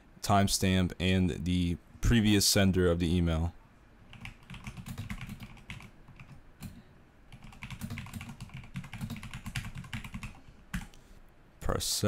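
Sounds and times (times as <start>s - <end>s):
typing on computer keyboard: 4.1s - 10.9s.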